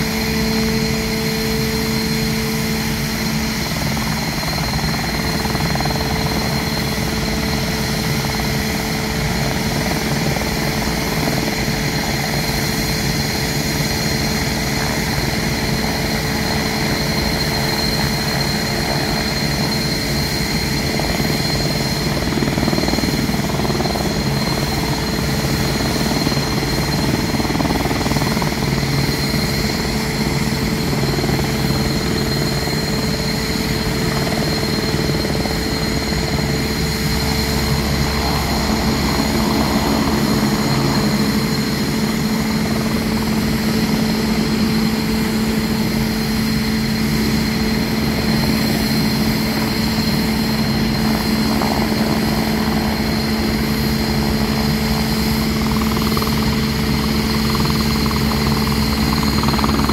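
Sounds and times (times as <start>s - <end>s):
helicopter rotor noise: 0.0s - 59.9s
helicopter turbine whine: 0.0s - 59.9s.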